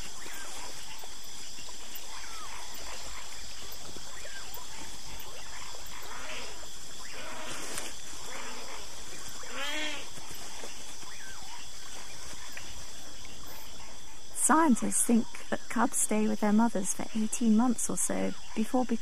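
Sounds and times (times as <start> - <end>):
faint chirps: 0.0 - 19.0
insects chorus: 0.0 - 19.0
wavering bleating animal call: 9.4 - 10.1.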